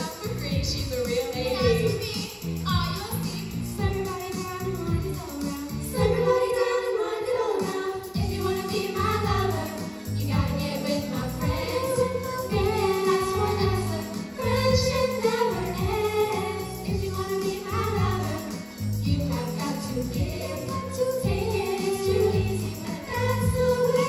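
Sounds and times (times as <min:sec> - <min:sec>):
bass line and beat: 0:00.3 - 0:06.2, 0:08.2 - 0:24.0
women singing together: 0:05.9 - 0:24.0.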